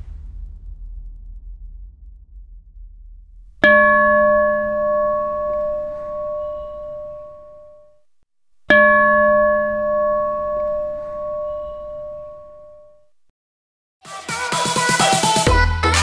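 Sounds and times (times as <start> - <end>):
large church bell ringing: 3.7 - 7.9, 8.7 - 13.0.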